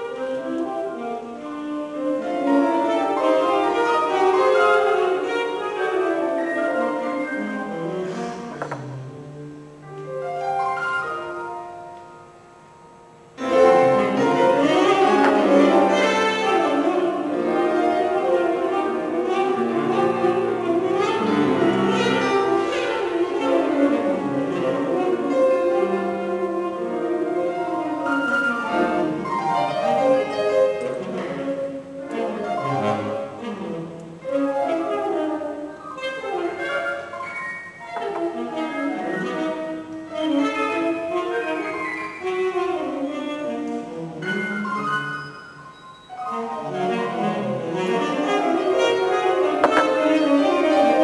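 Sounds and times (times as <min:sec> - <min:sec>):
piano and bowed strings: 0:00.0 - 0:51.0.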